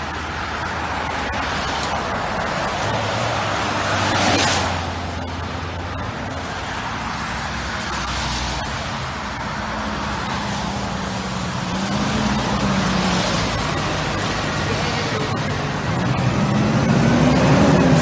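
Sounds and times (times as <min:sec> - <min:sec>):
tyres hissing on wet road: 0:00.0 - 0:18.0
heavy truck engine running: 0:04.7 - 0:18.0.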